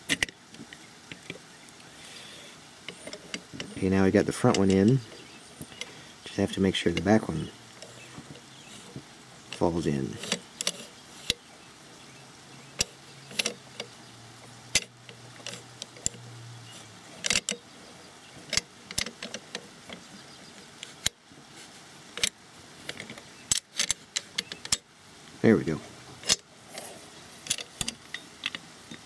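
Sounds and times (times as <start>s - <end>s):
rifle bolt metal clicks: 12.8s - 13.9s, 17.2s - 17.6s.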